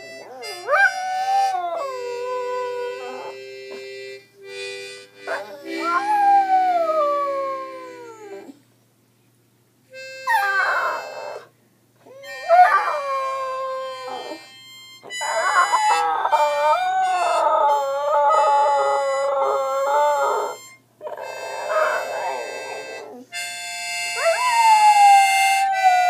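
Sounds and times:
harmonica notes: 0.0s - 8.6s, 9.9s - 26.0s
dog howling: 0.3s - 3.4s, 5.3s - 8.6s, 10.3s - 11.5s, 12.1s - 14.4s, 15.1s - 23.2s, 24.2s - 26.0s.

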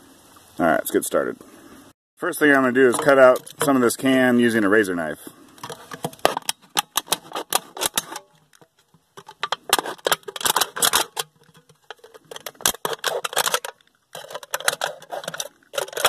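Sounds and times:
knife slicing aluminium can: 5.6s - 8.4s, 9.2s - 16.0s.

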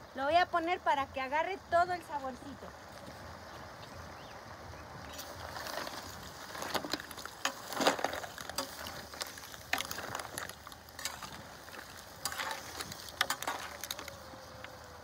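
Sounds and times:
metal spatula stirring shellfish: 5.2s - 14.6s.

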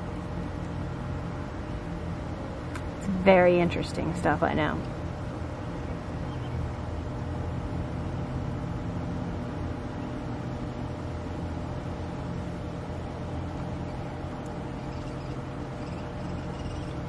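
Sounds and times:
faint steady whine: 0.0s - 17.0s
pool pump motor hum: 0.0s - 17.0s.

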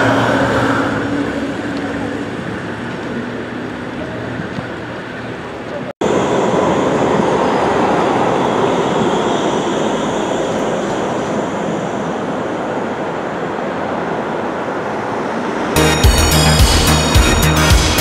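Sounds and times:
tram wheels rushing: 0.0s - 18.0s
music: 15.8s - 18.0s.

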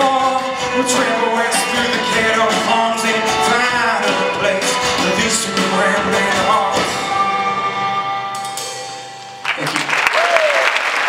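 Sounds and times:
male lead vocals: 0.0s - 7.5s
acoustic folk rock band playing: 0.0s - 9.7s.

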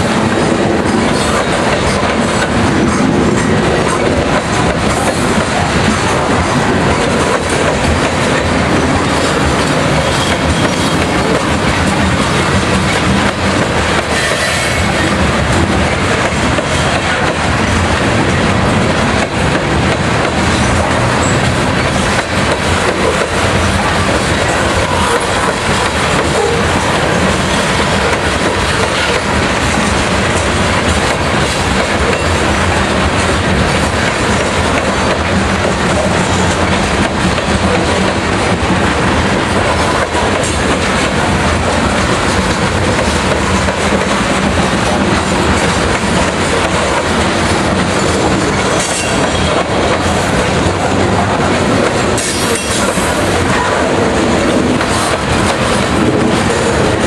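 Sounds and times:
freight train wheels on rails: 0.0s - 57.0s.

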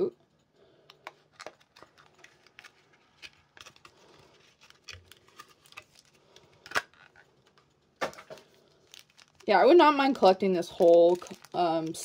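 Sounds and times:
plastic packaging crinkling: 0.9s - 12.0s.

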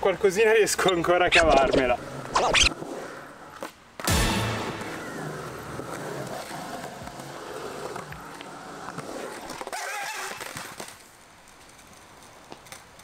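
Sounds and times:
skateboard wheels rolling on concrete: 0.0s - 13.0s
skateboard clack: 3.5s - 13.0s.

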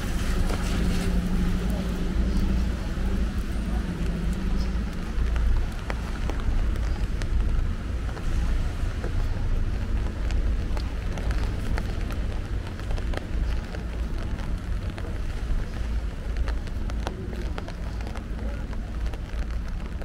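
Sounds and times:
rain on wet pavement: 0.0s - 20.0s
sharp ticks of raindrops: 0.0s - 20.0s
wind buffeting microphone: 0.0s - 20.0s.

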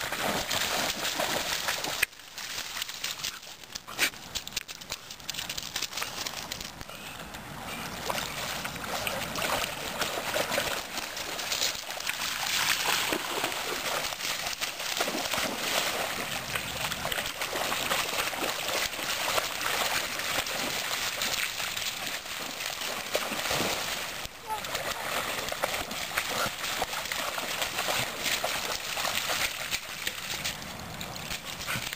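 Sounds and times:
dogs splashing through water: 0.0s - 31.9s.

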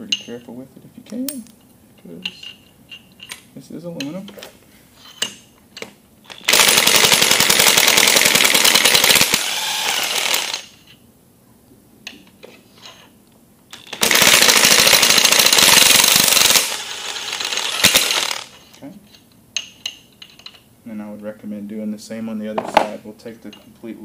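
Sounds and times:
impact wrench hammering: 5.2s - 10.8s, 13.7s - 18.6s.

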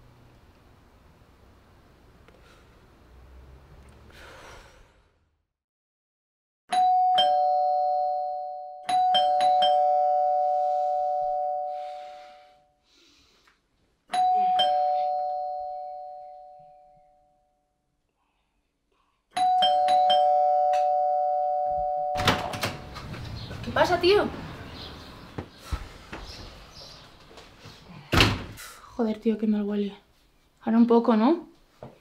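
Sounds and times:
two-tone doorbell chime: 6.7s - 12.2s, 14.1s - 17.5s, 19.4s - 22.6s.

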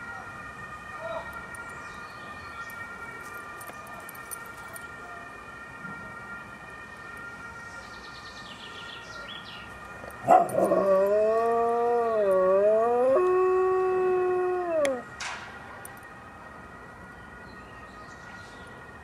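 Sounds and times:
faint police siren: 0.0s - 19.0s
dog howling: 10.2s - 15.0s.

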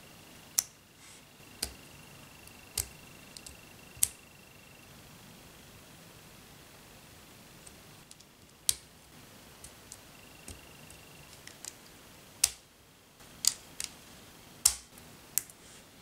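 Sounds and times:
plastic parts snapping together: 14.6s - 15.5s.

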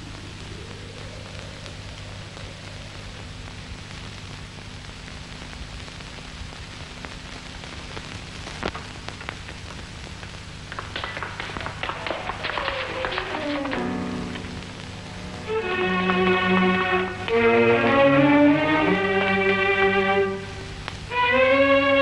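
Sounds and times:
film soundtrack hiss and hum: 0.0s - 22.0s
orchestral music: 12.1s - 22.0s.

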